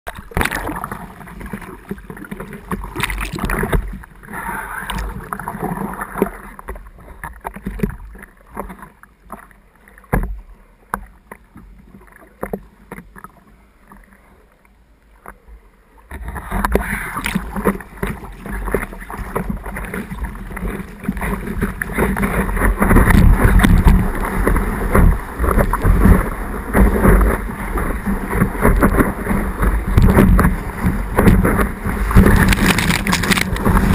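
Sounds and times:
water splashing against surfboard: 0.1s - 14.2s, 16.0s - 33.9s
rush of water: 0.1s - 33.9s
water lapping and dripping: 0.1s - 33.9s
wind on microphone: 16.2s - 33.9s.

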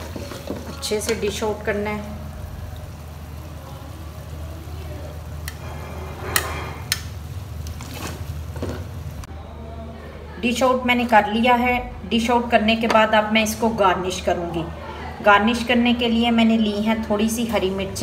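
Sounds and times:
metal ladle scraping a pot: 5.5s - 7.1s.

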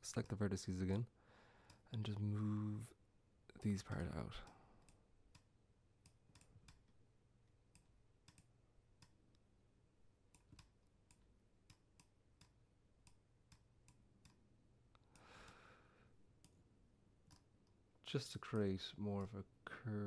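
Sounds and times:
computer mouse clicks: 3.5s - 7.0s, 7.7s - 9.2s, 10.3s - 14.4s, 17.2s - 17.8s.

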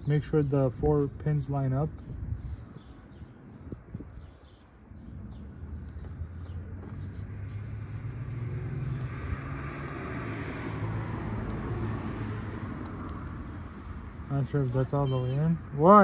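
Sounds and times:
engine low drone: 4.9s - 15.0s.

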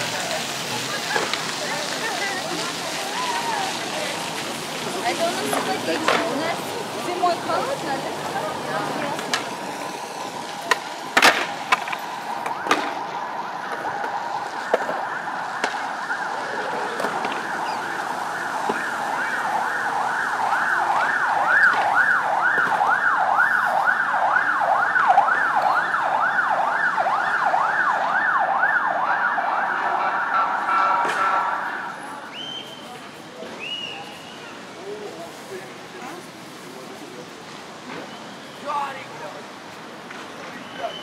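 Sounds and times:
emergency siren: 5.0s - 32.4s
skateboard clacks: 5.5s - 6.4s, 10.6s - 13.0s.

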